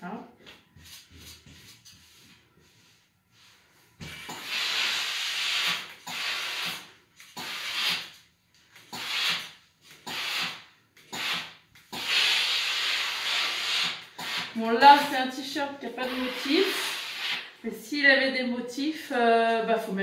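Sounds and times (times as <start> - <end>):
steam iron hissing: 4.2 - 8.1, 8.9 - 15.1, 16.0 - 17.6.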